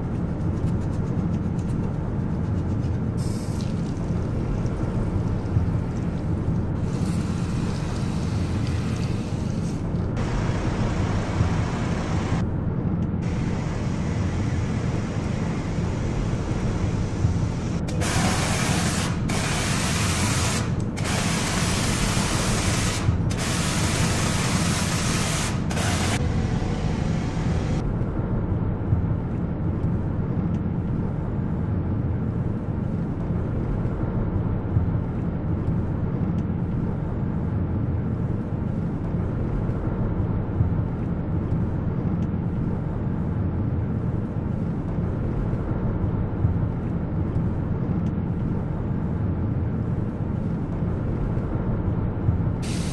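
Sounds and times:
steady low rumble: 0:00.0 - 0:52.9
hissing spray bursts: 0:03.2 - 0:03.9, 0:06.8 - 0:12.3, 0:17.9 - 0:26.2, 0:52.6 - 0:52.9.

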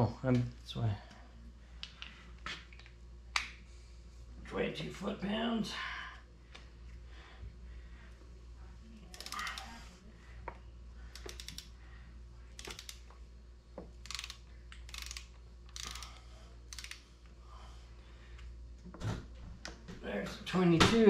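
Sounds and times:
torque wrench ratchet clicking: 0:09.1 - 0:09.7, 0:11.1 - 0:11.7, 0:12.6 - 0:13.1, 0:14.0 - 0:17.0.

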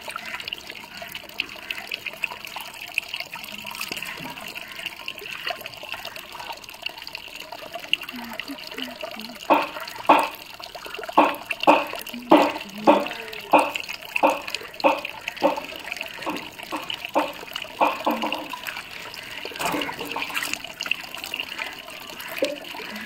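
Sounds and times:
mug of water poured and splashing: 0:00.0 - 0:23.0
running water: 0:00.0 - 0:23.0
short wet splashes: 0:07.7 - 0:23.0.

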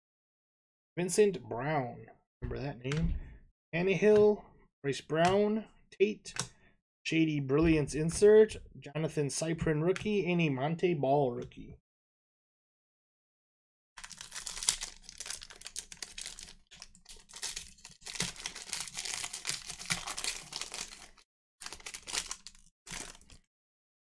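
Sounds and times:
card pack wrapper tearing and crinkling: 0:14.0 - 0:23.5.

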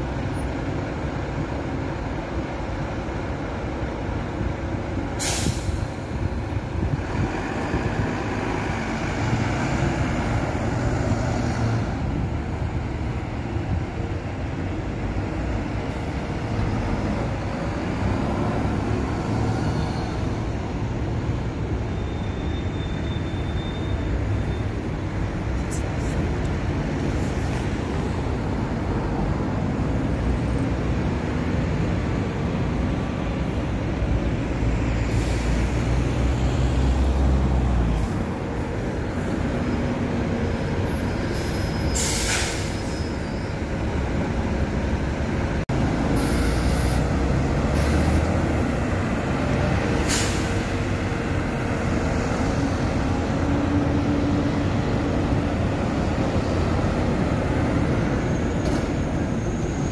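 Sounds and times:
bus engines rumbling: 0:00.0 - 0:59.9
air brakes hissing: 0:05.2 - 0:06.1, 0:35.0 - 0:35.9, 0:41.0 - 0:43.7, 0:46.2 - 0:48.2, 0:49.9 - 0:50.9.

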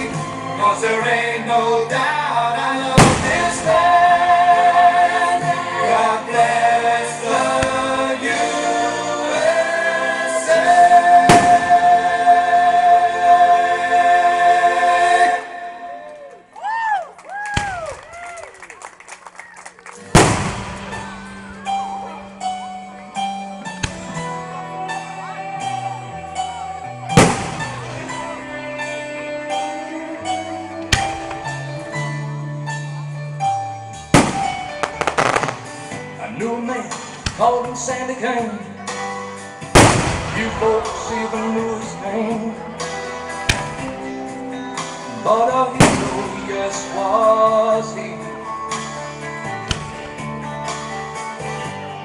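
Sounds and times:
music with held notes: 0:00.0 - 0:16.6, 0:19.8 - 0:52.0
firework bangs: 0:03.0 - 0:03.8, 0:11.2 - 0:12.0, 0:20.1 - 0:21.3, 0:27.2 - 0:28.2, 0:34.1 - 0:36.0, 0:39.7 - 0:42.1, 0:45.8 - 0:46.8
firework shell bang: 0:34.2 - 0:35.7, 0:39.8 - 0:40.9.

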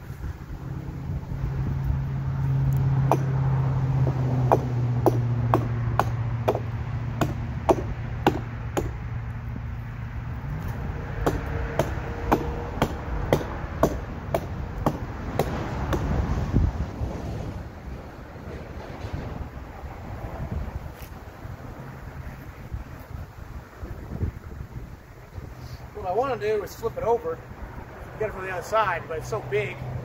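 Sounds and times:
hatchet chopping wood: 0:03.0 - 0:03.4, 0:04.5 - 0:09.0, 0:10.6 - 0:16.2.

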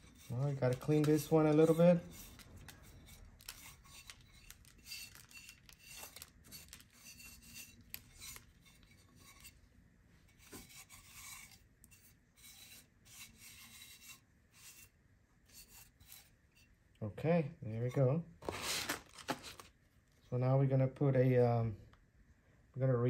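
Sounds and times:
hands scraping ceramic pot: 0:00.0 - 0:09.6, 0:10.3 - 0:14.9, 0:15.5 - 0:16.7.

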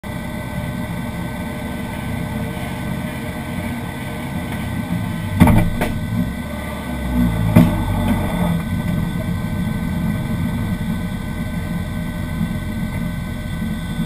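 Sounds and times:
car engine idling: 0:00.0 - 0:14.0
sharp knocks: 0:05.4 - 0:06.1.

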